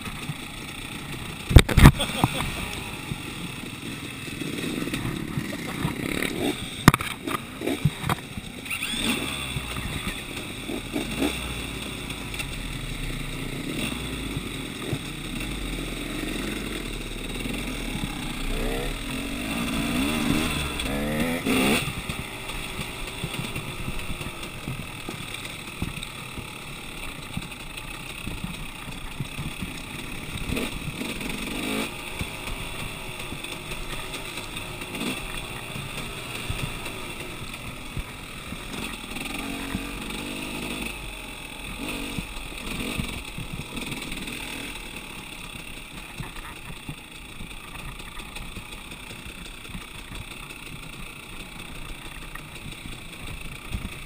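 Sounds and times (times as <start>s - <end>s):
dirt bike engine revving: 0.0s - 54.0s
bike knocks and rattles: 4.4s - 8.8s.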